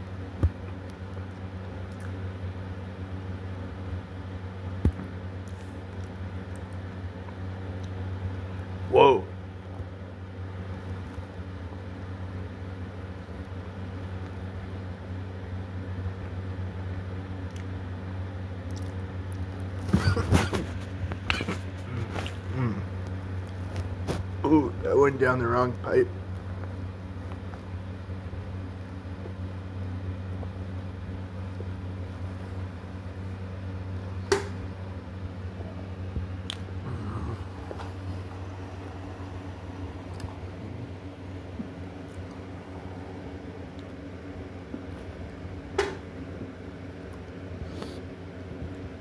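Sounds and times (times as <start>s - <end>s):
steady low hum: 0.0s - 49.0s
man chewing: 18.7s - 19.5s, 20.6s - 24.2s, 36.4s - 44.0s.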